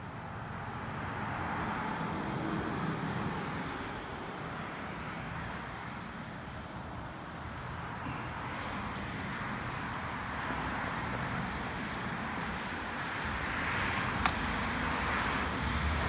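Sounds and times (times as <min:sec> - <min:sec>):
vehicle passing: 0:08.1 - 0:16.0.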